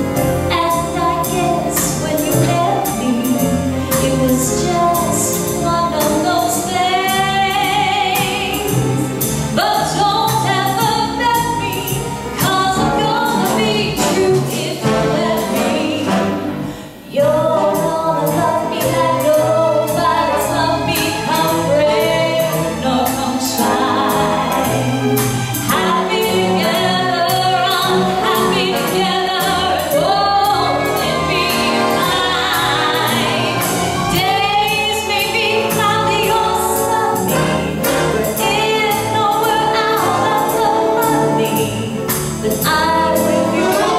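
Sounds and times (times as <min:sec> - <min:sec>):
symphony orchestra playing: 0:00.0 - 0:43.9
woman singing with vibrato: 0:00.5 - 0:25.0, 0:25.7 - 0:43.9.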